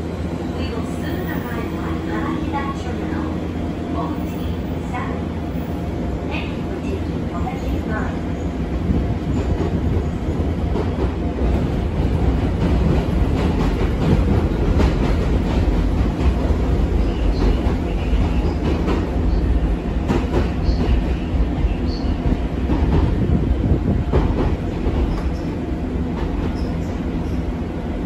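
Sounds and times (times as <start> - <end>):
train wheels rumbling on rail: 0.0 - 28.0
rail joint clicks: 8.9 - 27.6.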